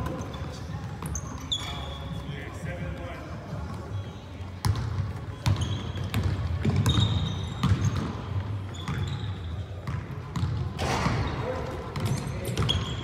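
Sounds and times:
sneakers squeaking: 0.0 - 13.0
basketball bouncing on wooden floor: 4.6 - 9.2, 9.8 - 11.2, 12.0 - 12.9.

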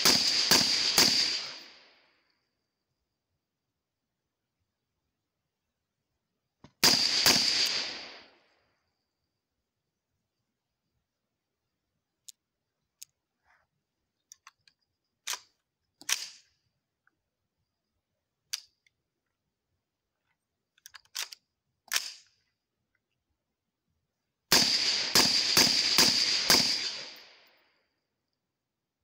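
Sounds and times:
suppressed rifle shots: 0.0 - 1.8, 6.8 - 8.4, 24.5 - 27.4.

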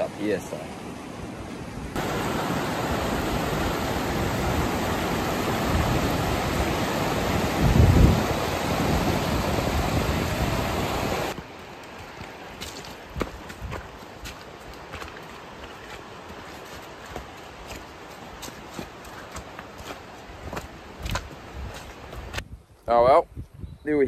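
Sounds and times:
river rushing over stones: 0.0 - 22.3
wind buffeting microphone: 1.9 - 11.4
footsteps crunching on stony track: 11.3 - 22.4.

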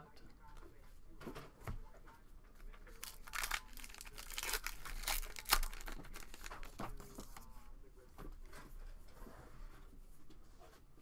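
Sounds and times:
wrapper crinkling and tearing: 2.9 - 7.4.

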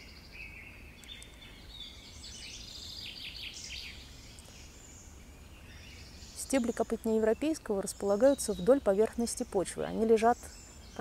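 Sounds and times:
songbirds singing: 0.0 - 11.0.

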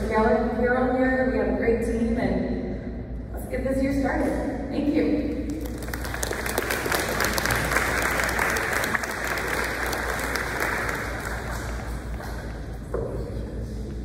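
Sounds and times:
audience applauding: 5.5 - 12.8.

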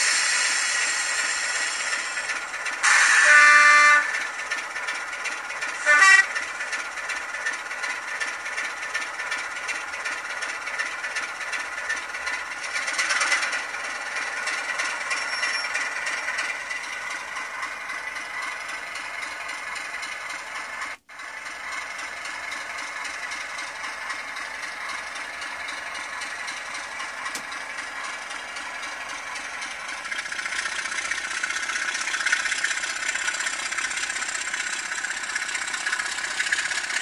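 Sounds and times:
diesel engine sound from speaker: 0.0 - 37.0
model train horn: 2.8 - 4.4, 5.8 - 6.4.

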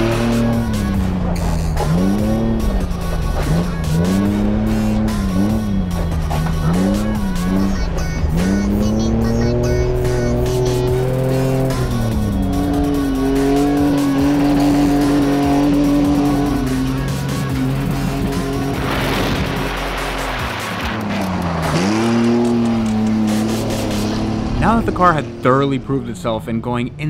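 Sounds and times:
background music: 0.0 - 27.0
car engine revving: 0.0 - 27.0.

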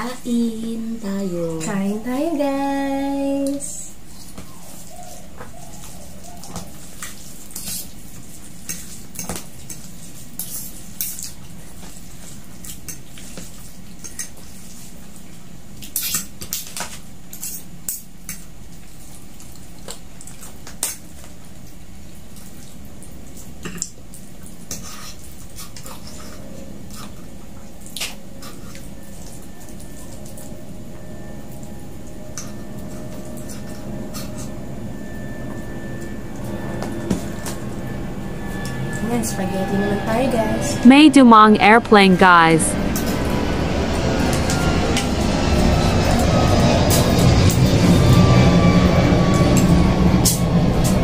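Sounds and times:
steady low hum: 24.6 - 51.0.

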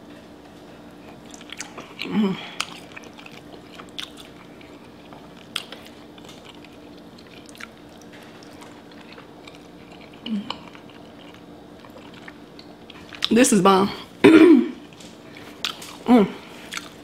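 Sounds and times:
chewing: 0.9 - 13.3, 14.8 - 17.0
person humming mm: 2.0 - 2.6, 10.3 - 10.6.

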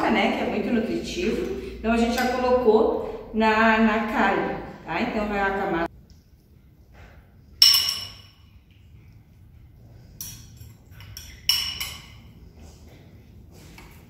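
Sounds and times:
metal spoon clinking on glass dish: 7.6 - 8.5, 10.2 - 12.3.

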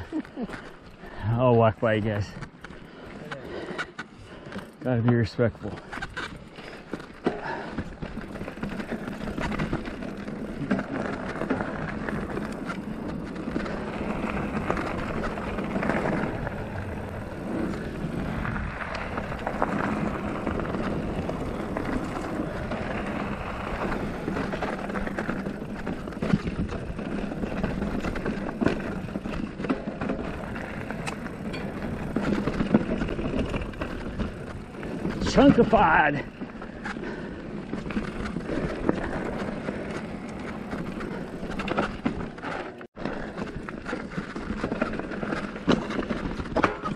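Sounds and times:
bike tyres on dirt and stones: 0.0 - 46.9
bike rattling and knocking: 1.8 - 46.9.

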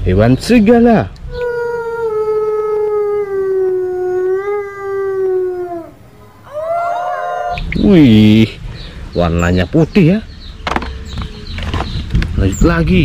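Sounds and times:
wolf howling: 1.3 - 7.7.

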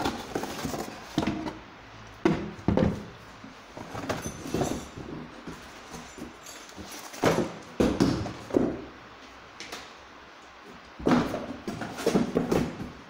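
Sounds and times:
cardboard knocks and rustles: 11.0 - 13.0.

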